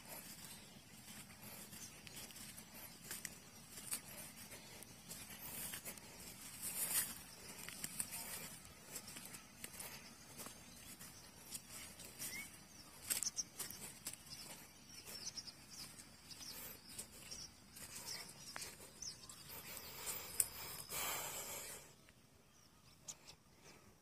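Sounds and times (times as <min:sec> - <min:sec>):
small birds chirping: 0:00.0 - 0:24.0
light clicks and scuffs: 0:05.1 - 0:20.6.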